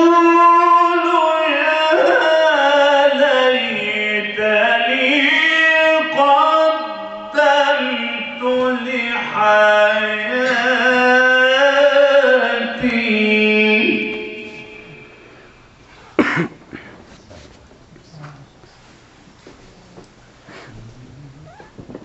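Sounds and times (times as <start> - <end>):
man chanting melodic recitation: 0.0 - 15.3, 20.5 - 21.9.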